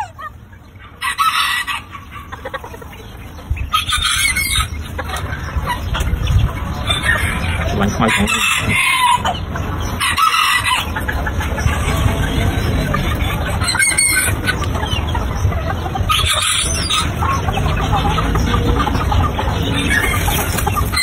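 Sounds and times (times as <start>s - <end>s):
chickens clucking: 0.0s - 21.0s
steady low rumble: 9.0s - 21.0s.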